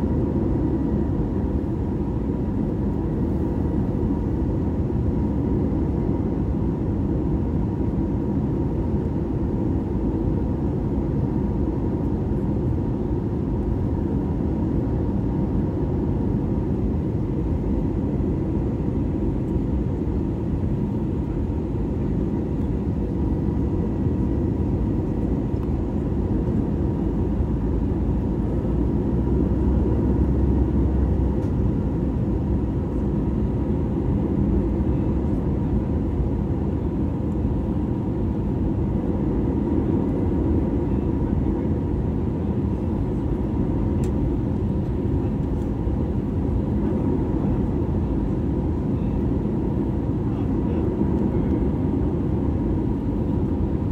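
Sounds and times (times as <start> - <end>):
jet engines droning: 0.0 - 53.9.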